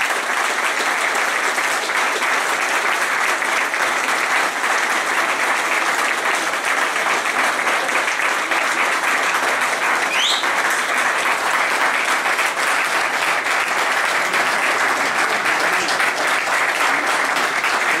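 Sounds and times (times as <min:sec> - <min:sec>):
audience applauding: 0:00.0 - 0:18.0
rising whistle from crowd: 0:10.1 - 0:10.7.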